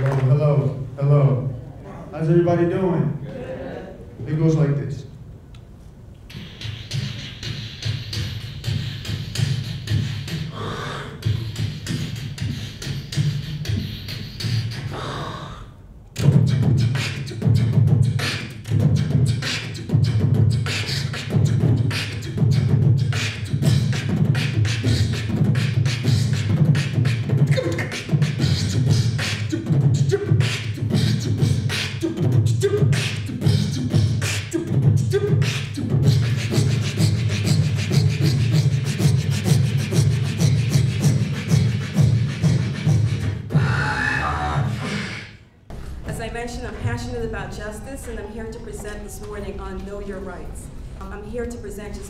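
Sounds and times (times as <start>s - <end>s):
man beatboxing: 6.3s - 45.6s.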